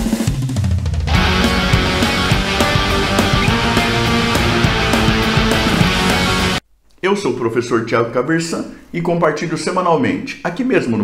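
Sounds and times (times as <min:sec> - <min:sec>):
loud rock music: 0:00.6 - 0:06.6.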